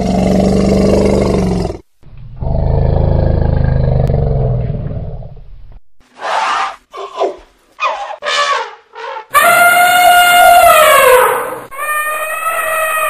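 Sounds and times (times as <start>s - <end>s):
deep animal roars: 0.0s - 5.4s.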